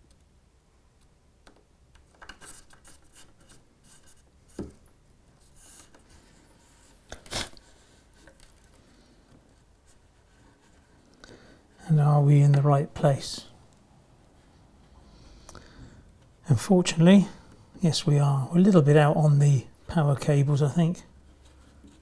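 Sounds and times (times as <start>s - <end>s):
thin wires rustling and scraping: 2.1s - 11.8s, 21.1s - 22.0s.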